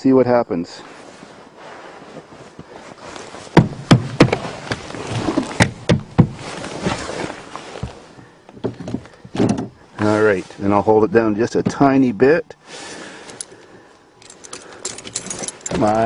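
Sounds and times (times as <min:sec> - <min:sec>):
rustling: 0:00.8 - 0:11.0.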